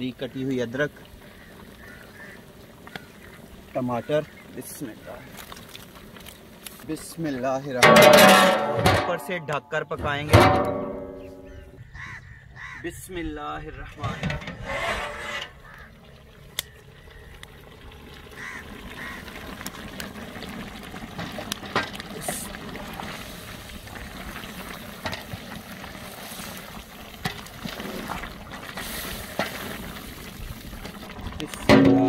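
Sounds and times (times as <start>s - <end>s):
food sizzling and bubbling: 0.0s - 12.8s, 13.8s - 32.0s
wooden spoon scraping pot: 14.1s - 15.8s.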